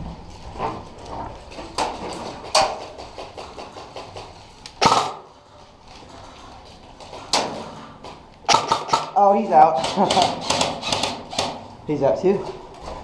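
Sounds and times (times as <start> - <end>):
cracks and knocks in metal room: 0.0 - 13.0
airsoft rifle shot: 4.8 - 5.3, 8.5 - 9.2.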